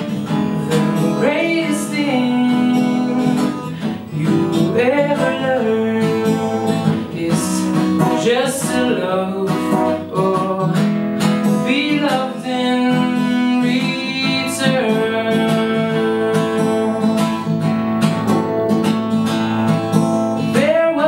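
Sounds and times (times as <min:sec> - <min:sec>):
acoustic guitar strumming and picking: 0:00.0 - 0:21.0
person singing wordless notes: 0:00.7 - 0:10.8, 0:11.6 - 0:17.2.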